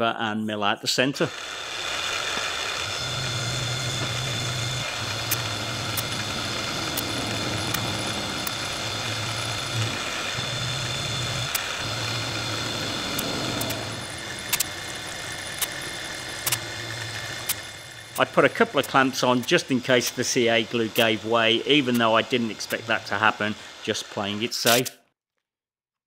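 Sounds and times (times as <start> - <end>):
milling machine motor drone: 1.0 - 24.9
sharp ticks: 3.1 - 22.8.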